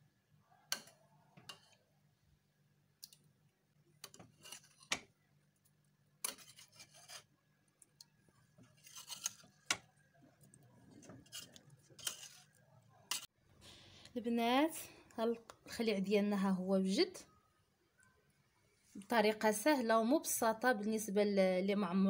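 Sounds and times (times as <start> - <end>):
metal spoon scraping pots: 0.7 - 1.9, 4.0 - 5.1, 6.2 - 7.3, 8.6 - 9.9, 10.8 - 13.3.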